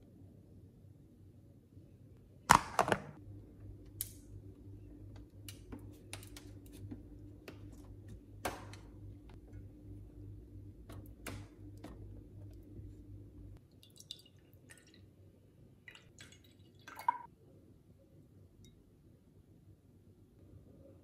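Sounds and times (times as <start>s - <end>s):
freezer low hum: 0.0s - 21.0s
plastic trays clacking and knocking: 2.5s - 3.2s.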